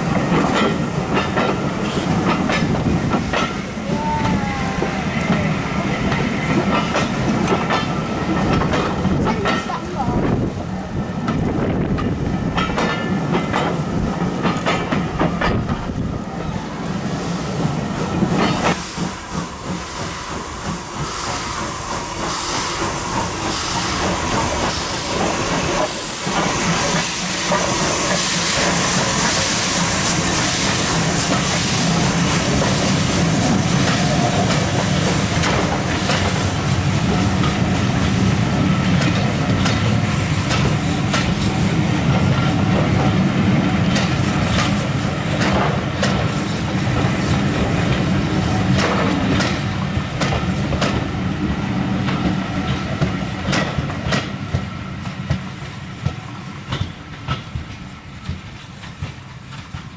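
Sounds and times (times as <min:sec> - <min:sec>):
train wheels clicking over rail joints: 0:00.0 - 0:04.4, 0:05.2 - 0:59.9
loud hiss of steam: 0:00.0 - 0:59.9.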